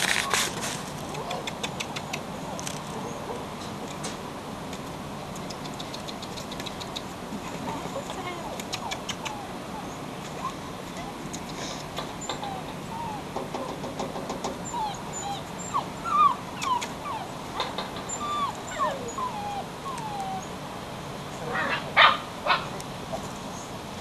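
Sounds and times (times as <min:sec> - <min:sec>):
puppy whimpering: 0:07.9 - 0:13.8, 0:14.6 - 0:20.5.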